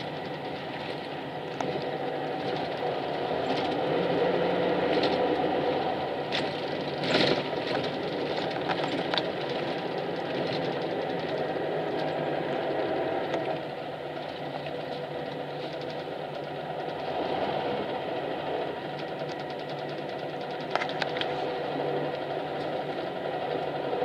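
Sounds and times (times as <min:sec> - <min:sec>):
bus engine running: 0:00.0 - 0:24.0
road noise: 0:00.0 - 0:24.0
light rattles: 0:18.8 - 0:21.6.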